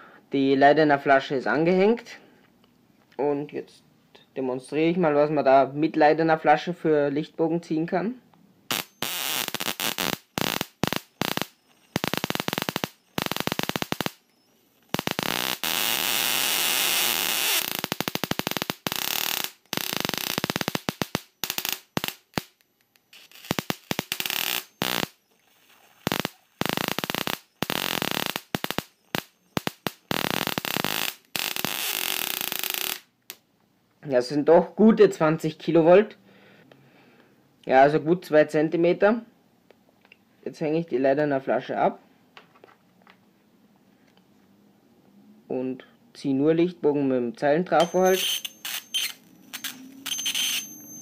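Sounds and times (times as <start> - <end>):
electric sparks snapping and buzzing: 8.7 - 33.4, 47.8 - 51.0.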